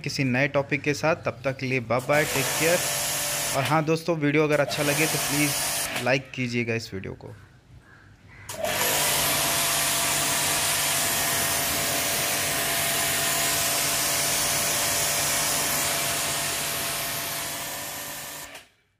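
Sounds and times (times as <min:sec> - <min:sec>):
pressure washer motor humming: 0:02.0 - 0:03.8, 0:04.5 - 0:06.0, 0:08.5 - 0:18.6
high-pressure water jet hissing: 0:02.1 - 0:03.8, 0:04.5 - 0:06.0, 0:08.6 - 0:18.6.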